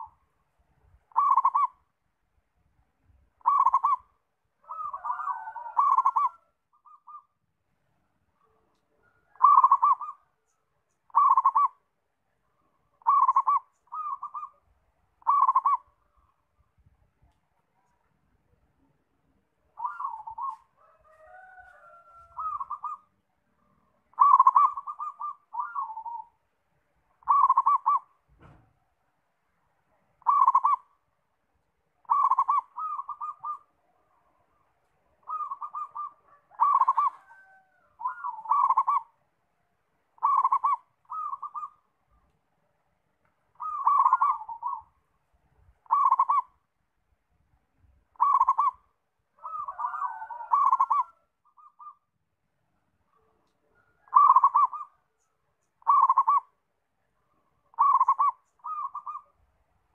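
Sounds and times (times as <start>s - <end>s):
dove cooing: 0.0s - 0.2s, 1.1s - 1.8s, 3.4s - 7.3s, 8.4s - 10.4s, 11.1s - 11.8s, 12.8s - 16.4s, 19.7s - 23.1s, 24.0s - 26.4s, 27.2s - 28.6s, 30.2s - 30.9s, 32.0s - 33.8s, 35.2s - 39.2s, 40.2s - 41.9s, 43.5s - 45.0s, 45.8s - 46.6s, 48.1s - 52.1s, 53.1s - 55.1s, 55.8s - 56.6s, 57.6s - 59.4s.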